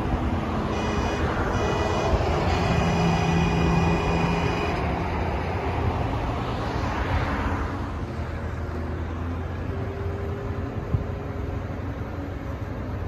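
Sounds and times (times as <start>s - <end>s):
tractor engine humming: 0.0s - 6.8s.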